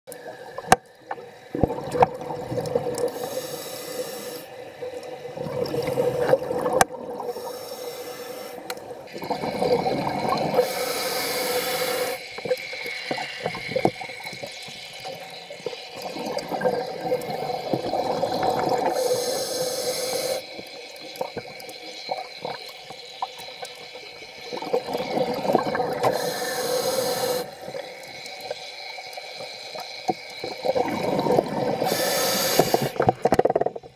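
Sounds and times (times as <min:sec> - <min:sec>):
scuba regulator breathing underwater: 0:02.9 - 0:04.7, 0:05.4 - 0:15.2, 0:15.9 - 0:20.6, 0:24.4 - 0:33.2.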